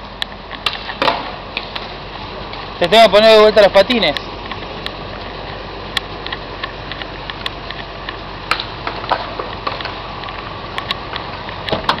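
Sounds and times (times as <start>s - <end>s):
outdoor background hiss: 0.0s - 12.0s
small clicks and knocks: 4.1s - 12.0s.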